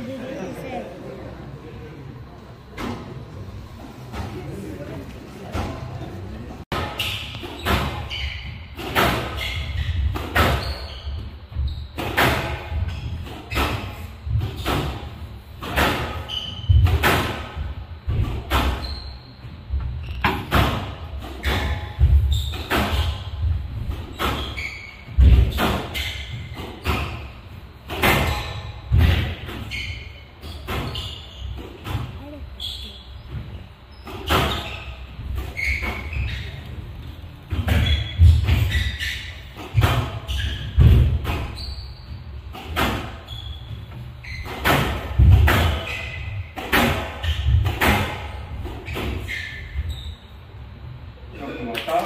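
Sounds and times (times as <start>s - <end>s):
shoe squeaks: 6.9s - 17.7s, 18.3s - 50.6s.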